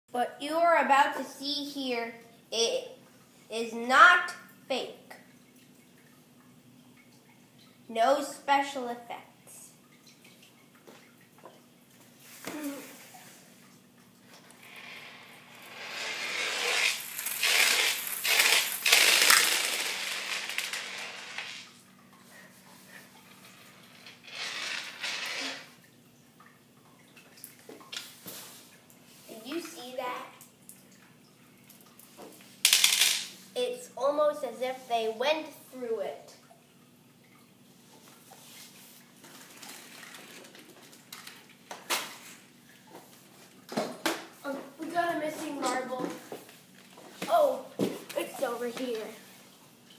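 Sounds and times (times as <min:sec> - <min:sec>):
marbles clattering in plastic cup: 0:15.7 - 0:21.7, 0:24.0 - 0:25.7, 0:32.7 - 0:33.3.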